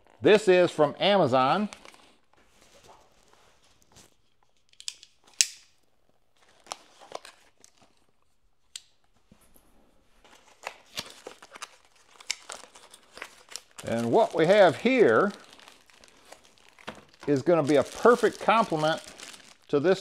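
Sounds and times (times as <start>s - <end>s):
paper packing crinkling: 10.2s - 20.0s.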